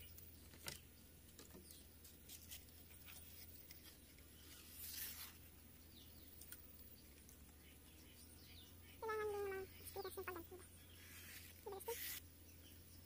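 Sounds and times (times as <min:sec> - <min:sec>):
knife scraping leaf midribs: 0:02.0 - 0:05.5.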